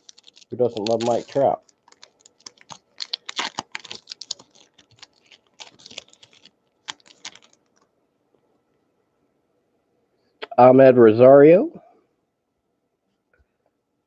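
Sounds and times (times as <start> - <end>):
cards and wrapper clicking: 0.0 - 7.9.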